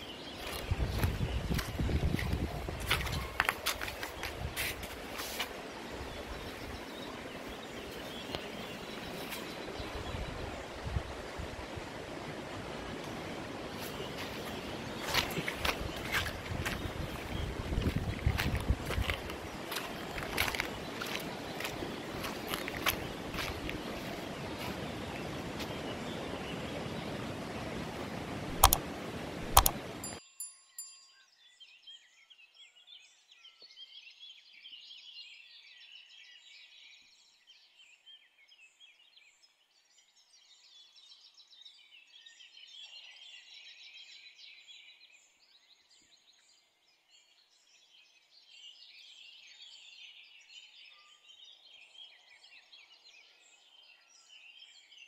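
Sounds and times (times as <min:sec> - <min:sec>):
small birds chirping: 0:00.0 - 0:11.9, 0:13.1 - 0:55.0
wind and sea rushing: 0:00.0 - 0:30.2
sharp clicks: 0:28.6 - 0:28.8, 0:29.5 - 0:29.9.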